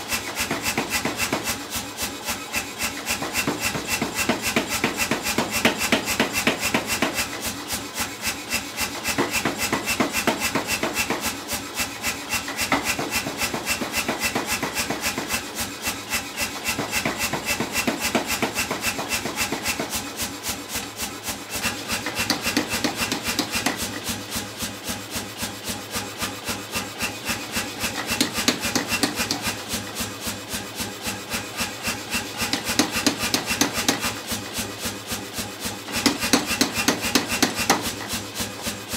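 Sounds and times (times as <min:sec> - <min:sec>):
power hammer striking steel: 0:00.0 - 0:01.6, 0:02.3 - 0:07.4, 0:08.3 - 0:20.1, 0:21.4 - 0:24.2, 0:26.2 - 0:29.8, 0:31.2 - 0:34.4, 0:35.8 - 0:38.1.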